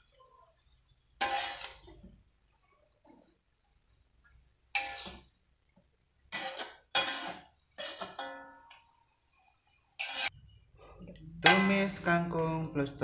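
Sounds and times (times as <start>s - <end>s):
metal spatula scraping a wok: 0.0s - 2.1s, 4.6s - 5.4s, 6.3s - 12.0s.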